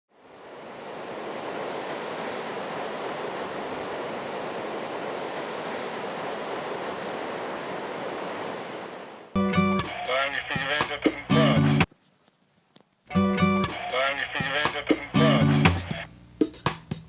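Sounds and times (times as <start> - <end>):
ocean waves breaking: 0.1 - 11.6, 13.6 - 16.1.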